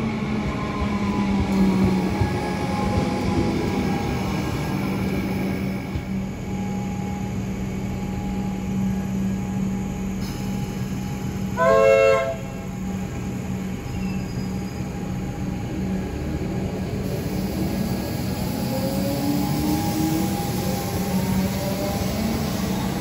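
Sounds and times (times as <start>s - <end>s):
electric train humming and rumbling: 0.0s - 23.0s
train horn blast: 11.6s - 12.8s.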